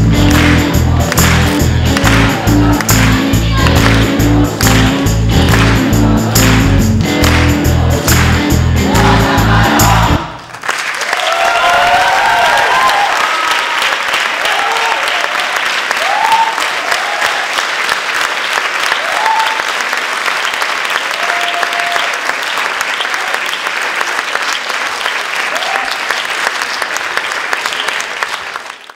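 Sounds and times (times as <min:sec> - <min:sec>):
song with steady beat: 0:00.0 - 0:10.3
audience applause: 0:00.0 - 0:28.9
cheers and whoops: 0:11.0 - 0:17.6, 0:18.9 - 0:19.8, 0:21.0 - 0:22.2, 0:25.5 - 0:26.1.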